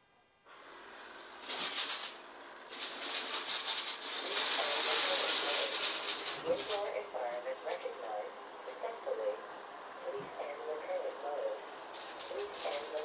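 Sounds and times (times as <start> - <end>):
robot vacuum running: 0.6 - 13.0
beans rattling: 0.8 - 7.0, 11.8 - 13.0.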